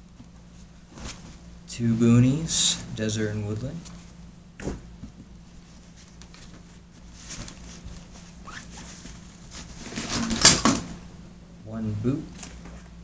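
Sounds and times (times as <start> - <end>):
fabric rustling: 0.3 - 1.6, 3.9 - 10.4.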